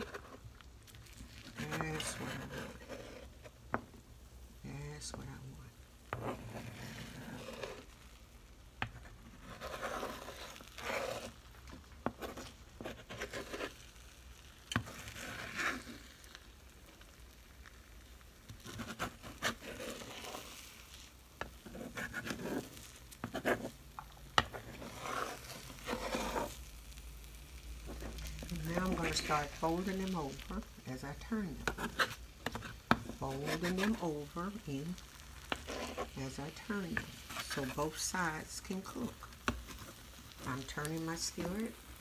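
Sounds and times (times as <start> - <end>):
metal spoon scraping skillet: 0.0 - 3.5, 6.1 - 8.0, 8.8 - 13.8, 18.5 - 27.0, 27.8 - 41.9
eggs sizzling: 0.0 - 42.0.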